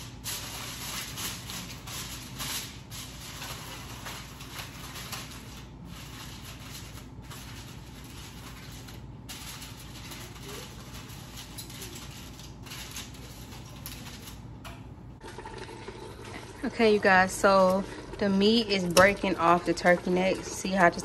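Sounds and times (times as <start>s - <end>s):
aluminium foil crinkling: 0.0s - 14.6s.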